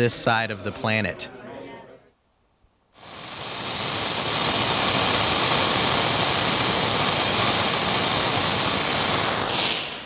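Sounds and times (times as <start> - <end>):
tv static hiss: 2.9 - 10.0.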